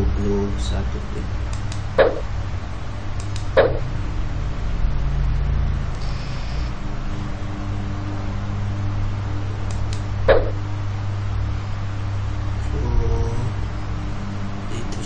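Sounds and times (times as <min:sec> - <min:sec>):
low background rumble: 0:00.0 - 0:15.0
sharp click: 0:01.5 - 0:02.2, 0:03.2 - 0:03.8, 0:09.6 - 0:10.5.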